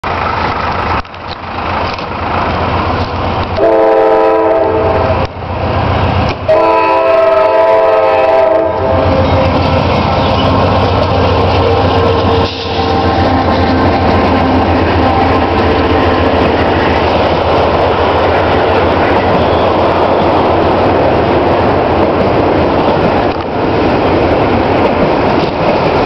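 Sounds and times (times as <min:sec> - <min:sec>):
diesel train rumble: 0:00.0 - 0:26.0
train air horn blasts: 0:03.6 - 0:05.3, 0:06.5 - 0:09.8, 0:11.4 - 0:13.2.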